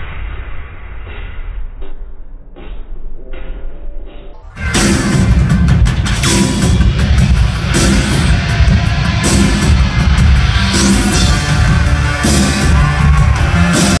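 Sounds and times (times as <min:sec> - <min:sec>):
electro-industrial music: 0:00.0 - 0:14.0.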